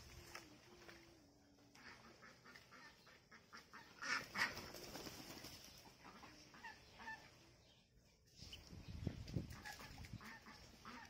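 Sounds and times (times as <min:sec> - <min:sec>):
ducks quacking: 0:01.7 - 0:04.9, 0:05.8 - 0:07.5, 0:09.4 - 0:11.0.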